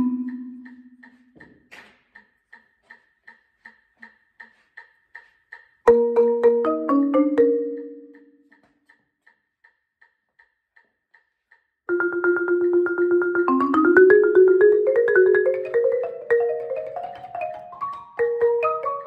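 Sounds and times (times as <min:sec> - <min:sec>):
marimba rolls: 0:00.0 - 0:01.0, 0:05.9 - 0:08.4, 0:11.9 - 0:19.0
faint ticks: 0:00.2 - 0:05.9, 0:08.0 - 0:11.9.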